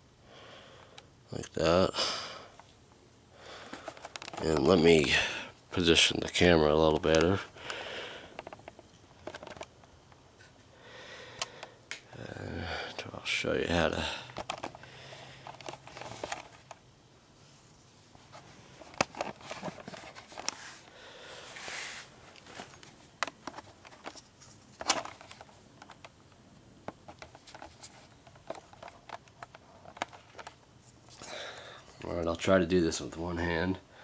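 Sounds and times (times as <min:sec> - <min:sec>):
short rustle: 0:17.4 - 0:22.8.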